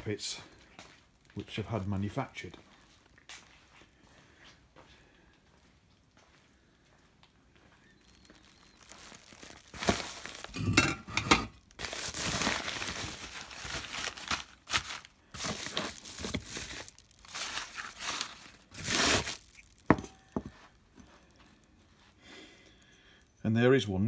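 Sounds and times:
paper and bubble-wrap crumpling: 7.9s - 20.8s.

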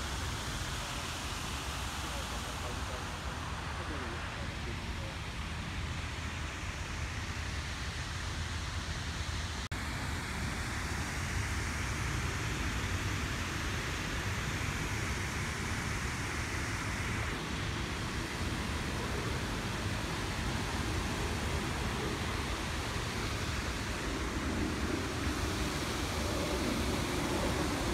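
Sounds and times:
garden waterfall rushing: 0.0s - 27.9s
wind on microphone: 11.6s - 27.9s.

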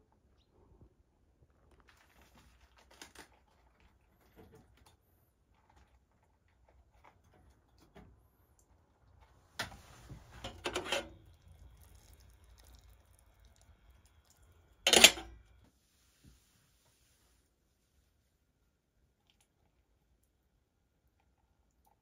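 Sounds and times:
metal kettle rattling clatter: 14.9s - 15.4s.

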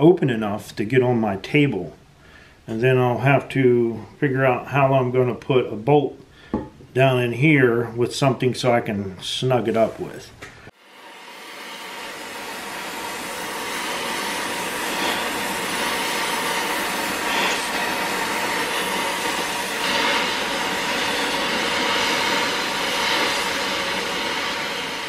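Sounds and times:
torch flame hissing: 10.7s - 25.0s.

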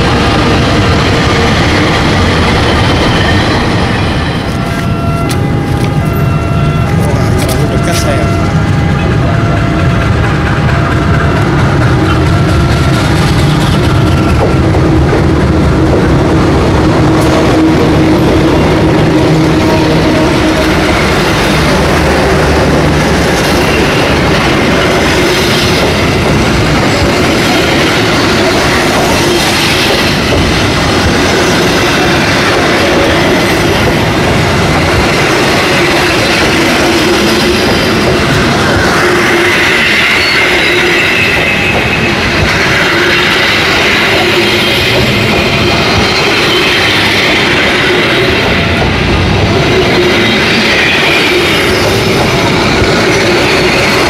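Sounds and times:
train coaches rumbling past: 0.0s - 54.0s
high wheel squeal: 19.2s - 26.2s, 35.7s - 49.0s.

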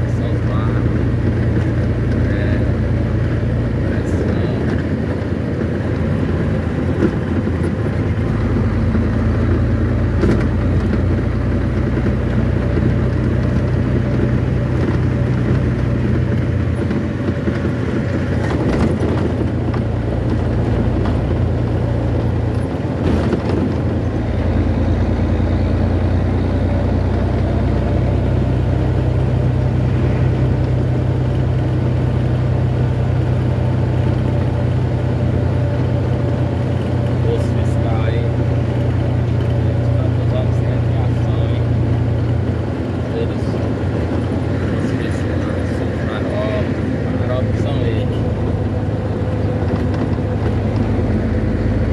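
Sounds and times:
road noise inside moving vehicle: 0.0s - 51.9s
vehicle engine hum: 0.0s - 51.9s.

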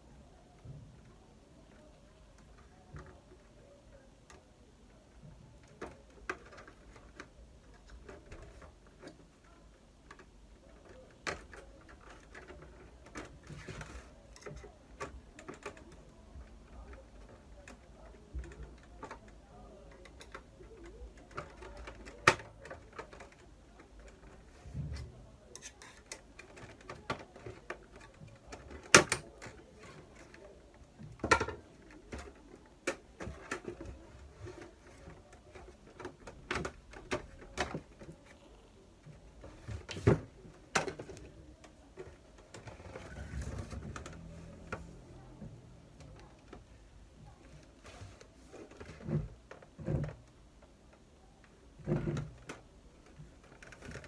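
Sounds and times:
handling and scraping noise: 0.4s - 54.0s
plastic cover clicking and snapping: 10.1s - 24.4s, 25.5s - 38.3s.

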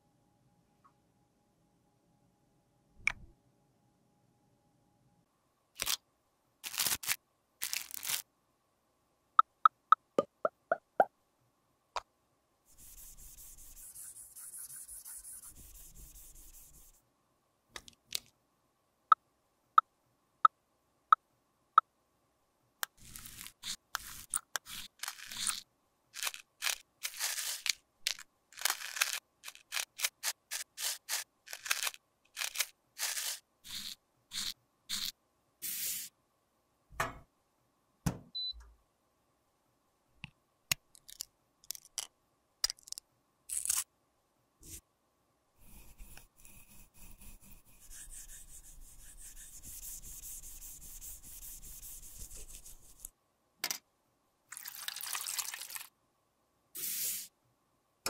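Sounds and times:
plastic crackling: 6.6s - 8.2s
powder scraped and crushed: 23.0s - 25.6s, 26.2s - 35.1s.

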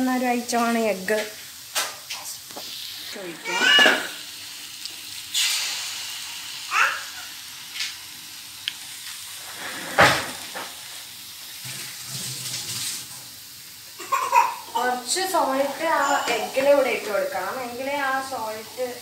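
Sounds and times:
vegetables sizzling in a hot pan: 0.0s - 19.0s.

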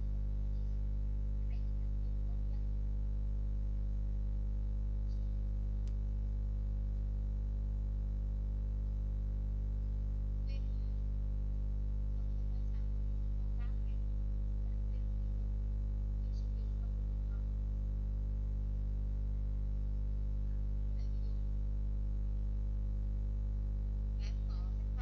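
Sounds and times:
electrical mains hum: 0.0s - 25.0s
faint click: 5.8s - 6.0s.

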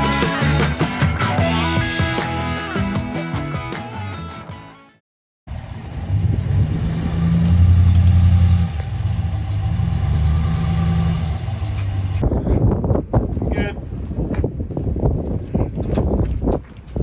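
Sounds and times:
background music: 0.0s - 5.0s
vehicle engine running: 5.5s - 12.2s.

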